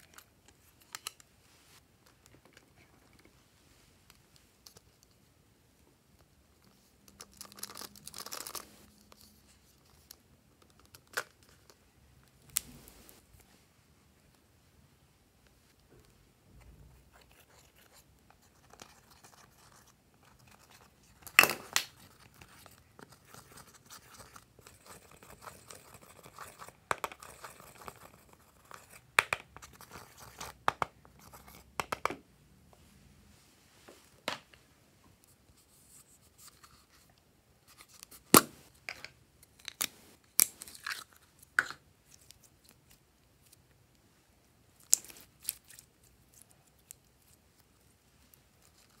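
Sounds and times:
spatula scratching eyeshadow: 22.5 - 29.0.

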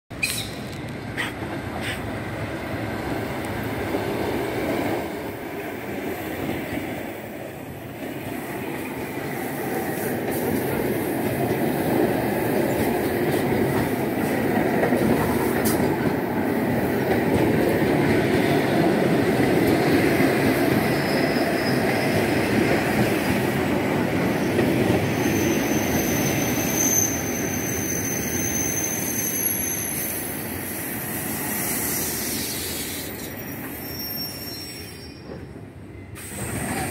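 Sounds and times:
train wheels on rails: 0.1 - 36.9
high-pitched brake squeal: 0.2 - 2.0, 20.9 - 22.2, 24.3 - 36.9.

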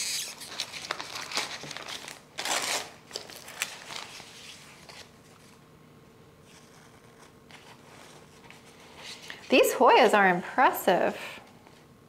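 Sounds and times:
paper wrapping crinkling: 0.0 - 5.6.

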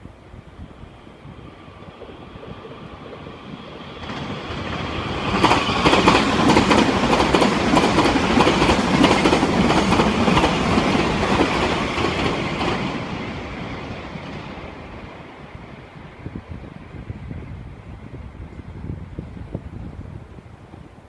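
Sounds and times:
electric train passing: 0.0 - 21.0.

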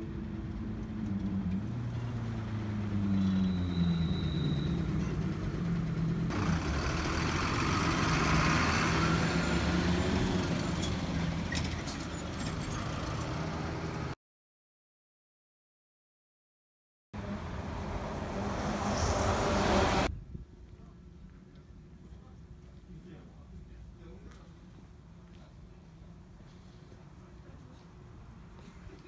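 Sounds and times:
bus engine running: 0.0 - 14.2, 17.2 - 20.1.

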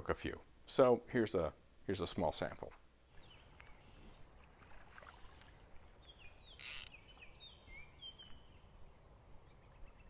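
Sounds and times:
faint creek rushing: 3.2 - 7.7
small birds whistling: 6.1 - 8.5.

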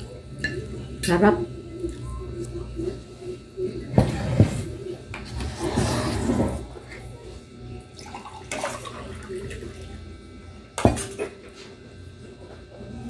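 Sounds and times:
water pouring into a mug: 8.0 - 9.8.

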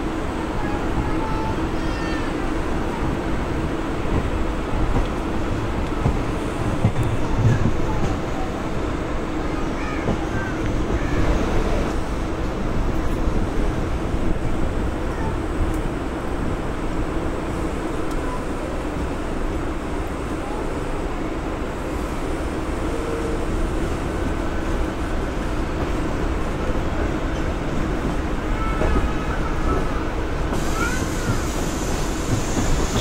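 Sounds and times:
train wheels rumbling on rail: 0.0 - 33.0
metallic squeals of train: 22.7 - 24.0, 28.7 - 33.0
train hiss: 29.0 - 33.0.

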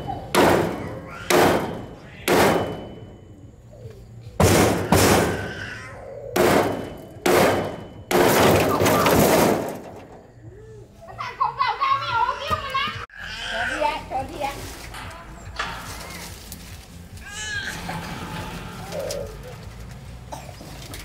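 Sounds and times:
hammer striking steel hinge: 0.0 - 3.3, 4.4 - 5.6, 6.4 - 10.3.

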